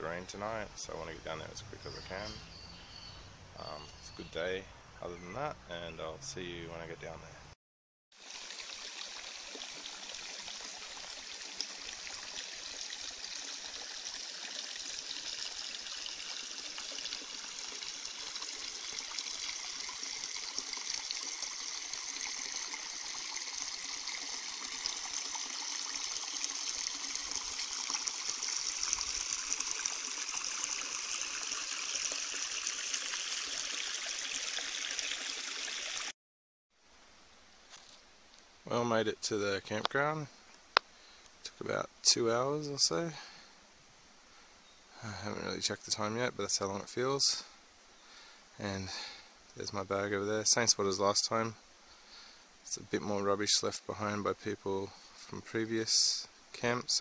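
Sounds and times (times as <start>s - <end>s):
stream water running: 0.0s - 4.5s, 8.1s - 36.2s, 37.6s - 57.0s.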